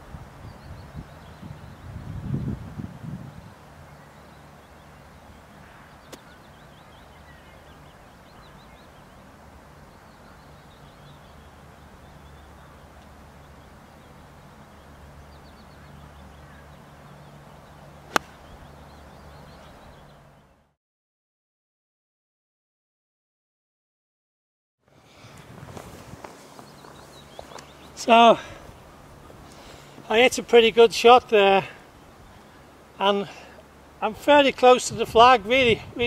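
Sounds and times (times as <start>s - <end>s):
outdoor background: 0.0s - 20.8s, 24.8s - 36.0s
golf club striking ball: 18.1s - 18.5s.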